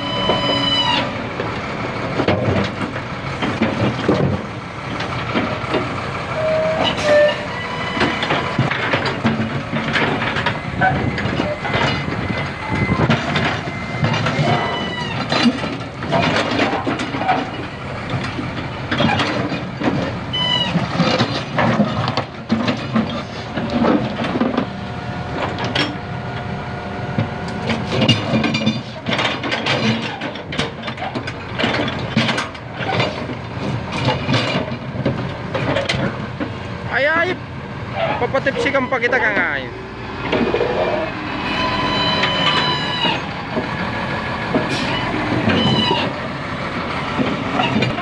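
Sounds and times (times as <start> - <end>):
diesel engine under load: 0.0 - 48.0
metal clanks: 6.8 - 24.7, 27.5 - 36.5, 47.1 - 48.0
hydraulic whine: 40.2 - 43.7
short high squeals: 41.4 - 43.3, 44.7 - 46.1.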